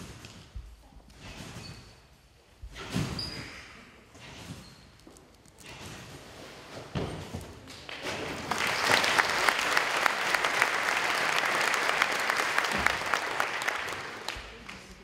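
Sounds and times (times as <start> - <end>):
audience applauding: 7.9 - 15.0.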